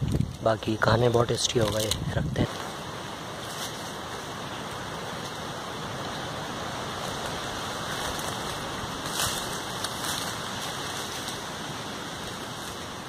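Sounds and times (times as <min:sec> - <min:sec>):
rustle of leaves and branches: 0:00.0 - 0:13.0
wind in trees: 0:00.0 - 0:13.0
wind on microphone: 0:00.0 - 0:13.0.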